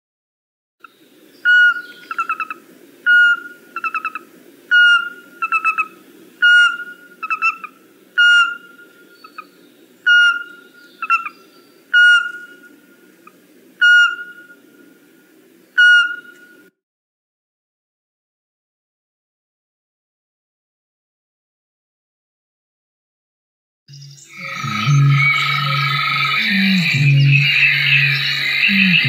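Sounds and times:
owl piping whistled notes: 1.4 - 12.8, 13.8 - 14.6, 15.8 - 16.7, 23.9 - 29.0.

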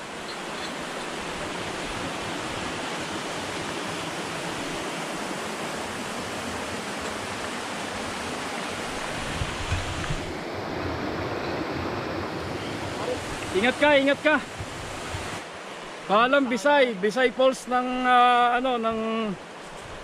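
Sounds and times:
waterfall rushing: 0.0 - 19.6.

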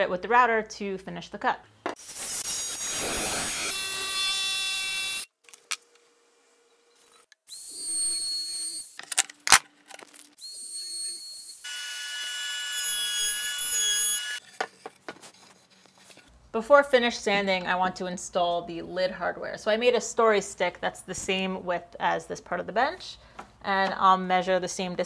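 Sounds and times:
router trimming wood: 2.0 - 5.3, 11.2 - 14.4
jigsaw cutting wood: 2.1 - 5.2.

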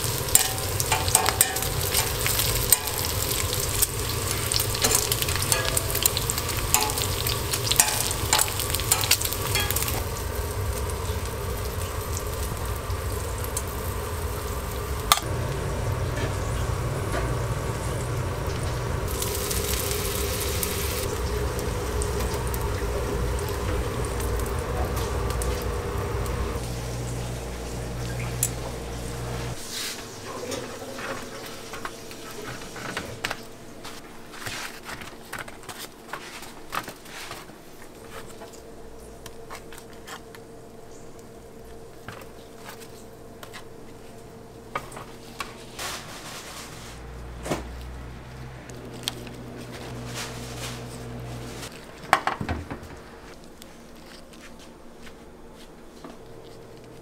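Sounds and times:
tongs on a sizzling griddle: 0.0 - 15.3, 18.4 - 30.0
steady low hum: 0.0 - 29.7, 37.4 - 57.0
utensils knocking on metal trays: 0.2 - 10.2.

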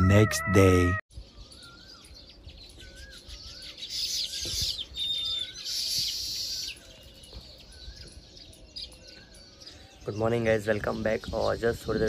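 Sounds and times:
dense high bird chirping: 0.0 - 12.0.

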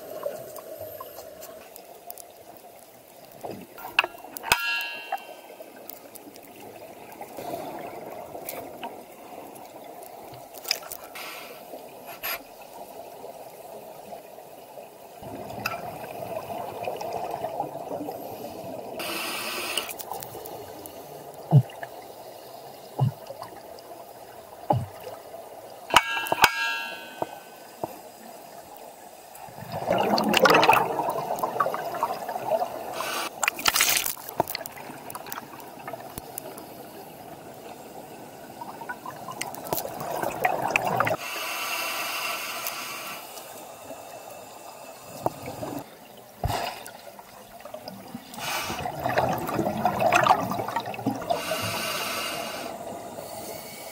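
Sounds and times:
steady watery rush: 0.0 - 53.9
exhaled bubbles rushing: 15.2 - 19.0, 29.4 - 36.2, 38.5 - 41.2, 45.2 - 51.4
scuba regulator hissing: 19.0 - 20.0, 48.4 - 48.9, 51.3 - 52.8.

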